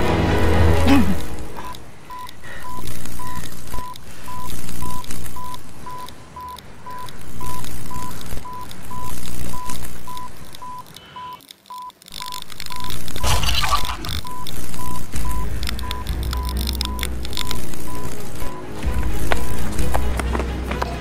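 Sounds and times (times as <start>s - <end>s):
low rumbling drone: 0.0s - 2.2s, 15.1s - 21.0s
electronic device short beeps: 1.6s - 18.6s.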